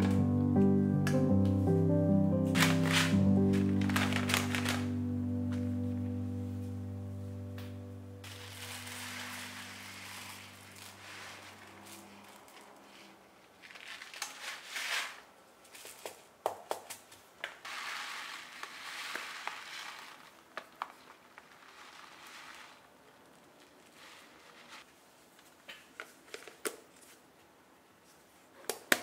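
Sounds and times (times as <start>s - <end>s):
background music: 0.0s - 10.9s
plastic bag crinkling: 2.5s - 5.6s, 8.2s - 15.2s, 17.6s - 24.8s
rice grains pouring: 2.6s - 5.0s, 8.2s - 15.2s, 17.6s - 24.9s.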